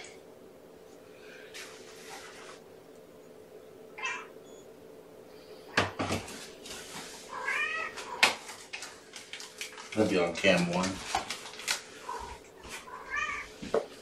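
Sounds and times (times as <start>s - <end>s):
cat meowing: 4.0s - 4.4s, 7.3s - 8.2s, 12.1s - 13.6s.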